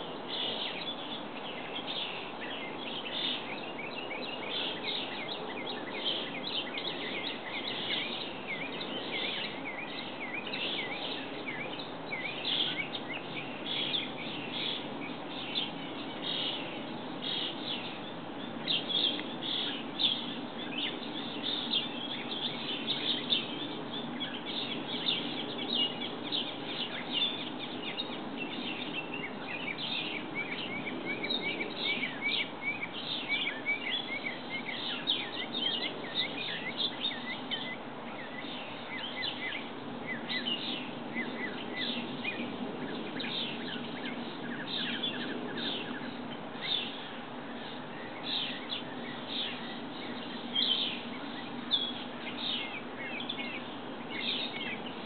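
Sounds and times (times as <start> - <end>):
low background noise: 0.0 - 55.0
songbirds chirping: 0.0 - 55.0.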